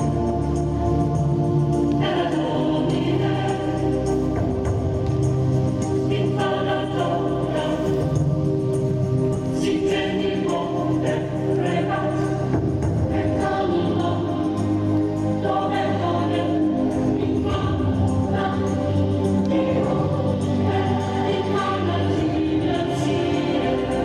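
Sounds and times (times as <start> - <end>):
choir singing sustained chords: 0.0 - 24.0.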